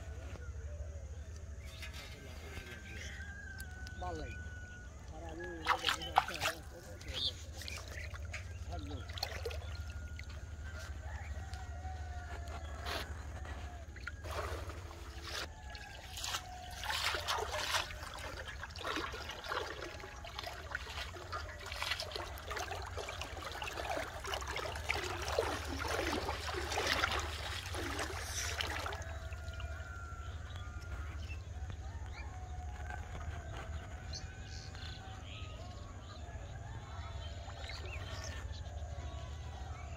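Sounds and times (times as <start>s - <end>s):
river water splashing: 5.1s - 31.1s.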